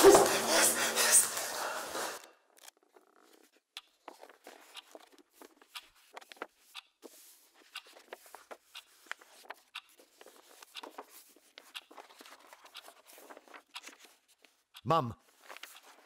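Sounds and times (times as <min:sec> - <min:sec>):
books knocking on wooden shelf: 0:00.0 - 0:00.4
paper rustling: 0:02.6 - 0:14.6, 0:15.2 - 0:16.0.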